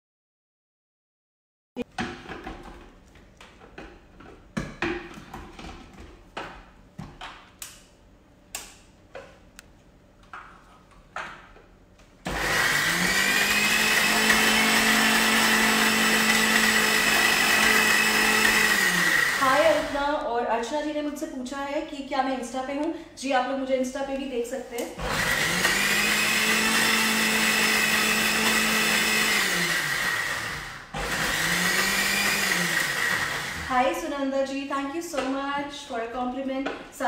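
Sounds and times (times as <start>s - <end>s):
blender running with high whine: 12.3s - 20.0s, 25.0s - 33.7s.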